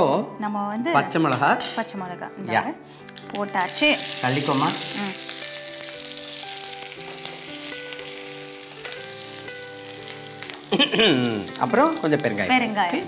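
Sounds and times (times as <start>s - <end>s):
hot oil sizzling in a pan: 3.2s - 13.0s.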